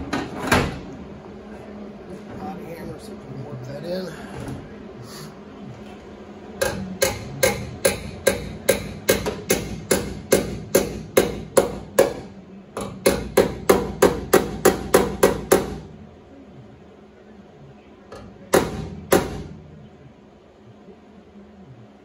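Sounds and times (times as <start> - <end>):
hammer striking sheet steel: 6.6 - 15.9, 18.2 - 19.6.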